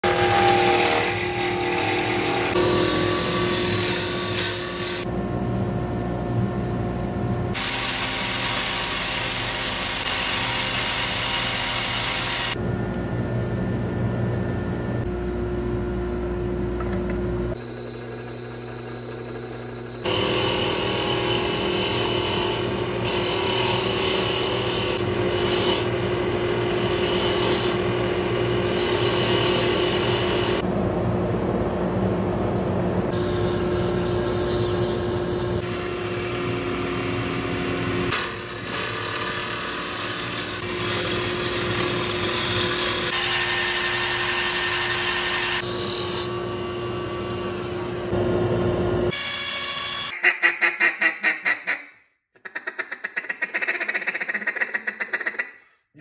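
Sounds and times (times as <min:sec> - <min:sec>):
tools cutting spinning wood: 0:00.0 - 0:05.1, 0:07.6 - 0:12.6, 0:17.6 - 0:30.6, 0:36.9 - 0:46.4
motor hum: 0:11.8 - 0:24.0.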